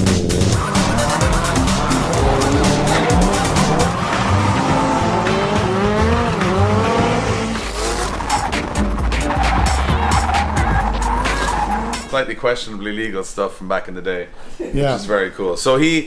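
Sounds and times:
car engines revving: 0.0s - 12.1s
tyre squeal: 7.5s - 12.1s.

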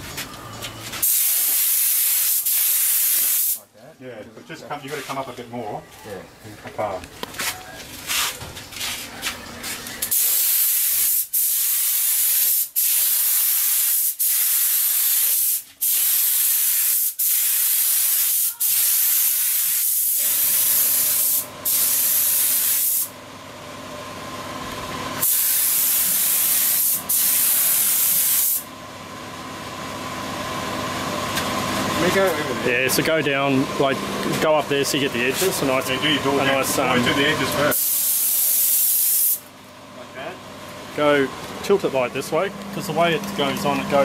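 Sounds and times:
spray gun hissing: 1.0s - 3.6s, 10.1s - 23.1s, 25.2s - 28.7s, 37.7s - 39.5s
steady hum: 29.6s - 44.0s.

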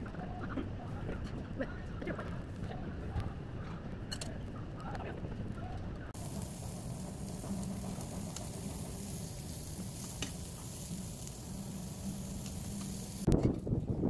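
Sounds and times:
meat sizzling on a grill: 6.2s - 13.3s.

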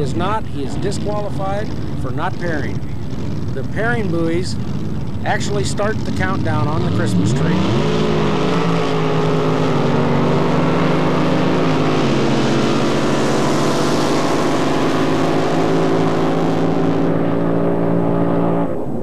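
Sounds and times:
boat engine running at high revs: 0.0s - 19.0s.

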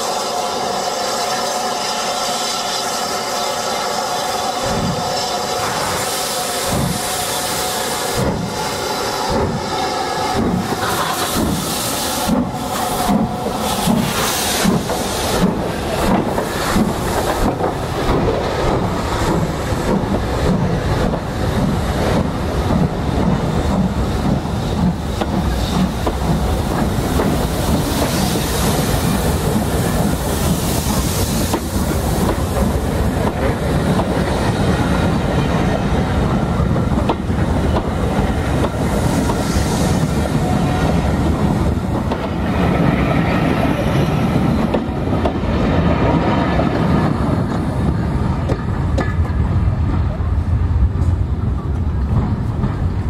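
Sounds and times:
steam hissing: 0.0s - 45.6s
steam locomotive exhaust beats: 0.0s - 53.0s
train wheels clattering over rail joints: 8.0s - 50.4s.

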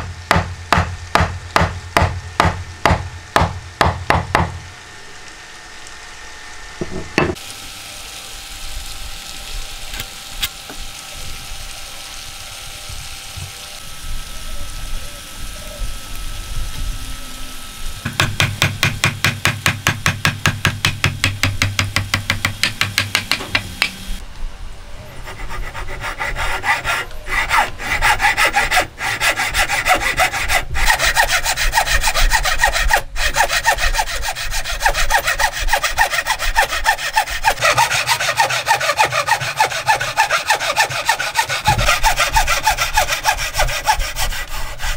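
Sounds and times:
knock: 6.8s - 7.4s
hand saw cutting wood: 25.2s - 44.9s.

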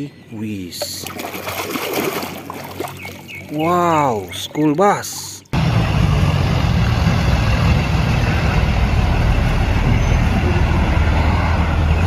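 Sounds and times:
bus engine droning: 5.6s - 12.0s.

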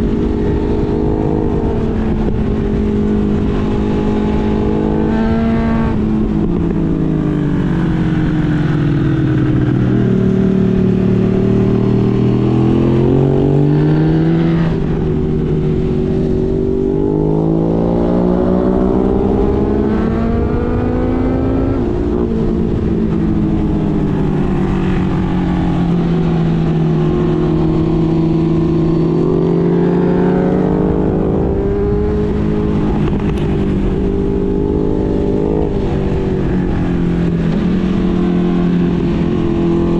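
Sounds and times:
motorcycle engine revving: 0.0s - 39.9s
wind rush: 0.0s - 39.9s.

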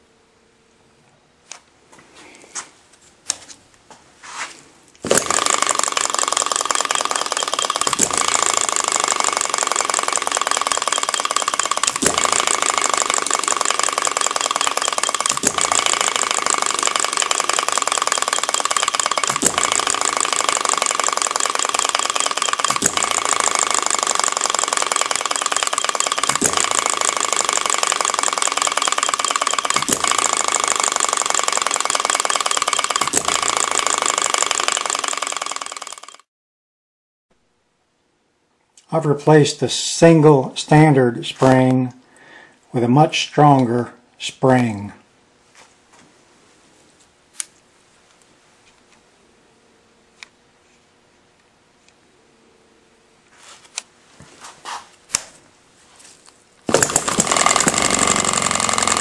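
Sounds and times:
hit-and-miss engine clatter: 5.0s - 36.2s, 56.7s - 59.0s
engine knocks: 5.1s - 35.4s, 56.7s - 59.0s.

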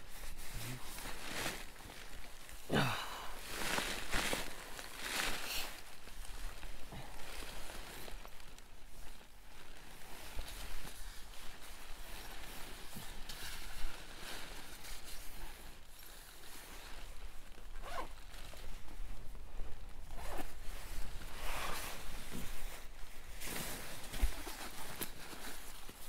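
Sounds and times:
fabric rustling: 0.0s - 26.0s
zipper pulled: 17.7s - 18.6s, 20.1s - 22.3s.

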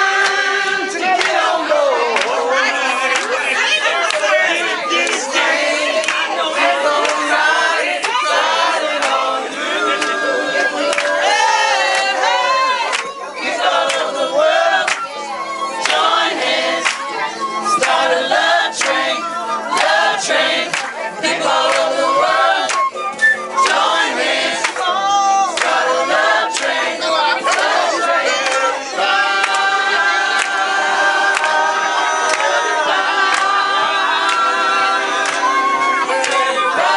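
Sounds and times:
group of people singing: 0.0s - 36.9s
flute: 6.3s - 13.5s, 14.6s - 29.2s, 29.9s - 36.9s.

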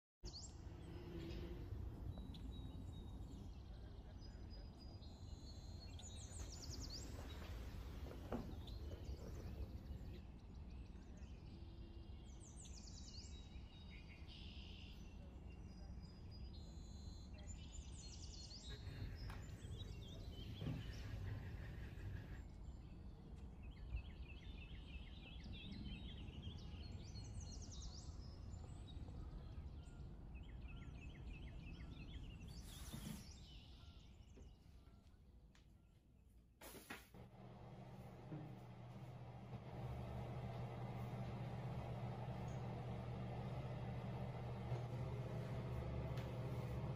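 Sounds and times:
low outdoor background rumble: 0.3s - 32.6s, 37.2s - 46.9s.

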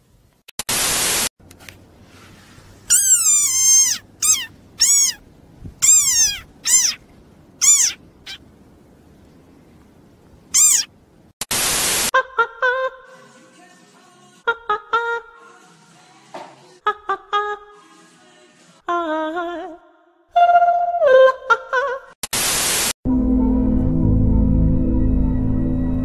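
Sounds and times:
static hiss: 0.6s - 1.3s, 7.4s - 12.1s, 22.3s - 23.0s
frog squeaking: 2.9s - 5.2s, 5.8s - 7.0s, 7.6s - 8.4s, 10.5s - 10.9s.

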